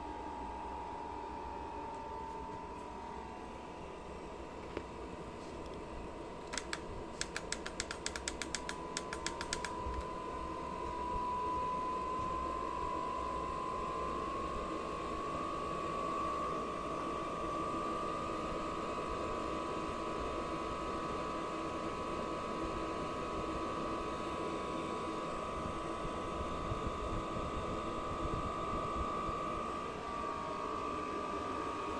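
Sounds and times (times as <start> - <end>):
blower motor whine: 0.0 - 31.9
light clicks: 6.4 - 10.1.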